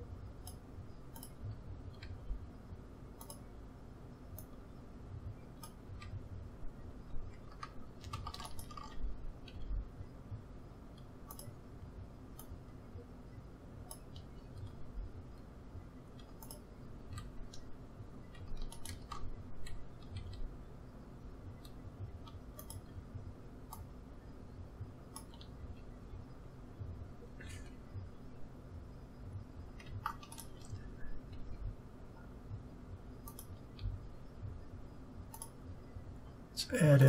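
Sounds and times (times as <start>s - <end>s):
low background hum: 0.0s - 37.0s
keyboard and mouse clicks: 0.4s - 2.2s, 3.2s - 3.5s, 5.6s - 6.2s, 7.3s - 9.7s, 10.9s - 11.6s, 12.3s - 12.6s, 13.8s - 14.8s, 16.1s - 17.7s, 18.3s - 20.5s, 21.6s - 23.0s, 25.1s - 25.6s, 29.7s - 31.5s, 33.2s - 34.0s, 35.3s - 35.6s.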